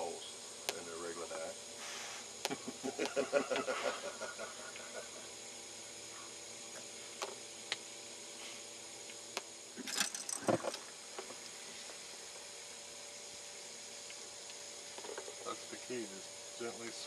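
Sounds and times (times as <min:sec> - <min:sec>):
faint hum and hiss: 0:00.0 - 0:17.0
fishing gear clicking and clattering: 0:09.8 - 0:10.8.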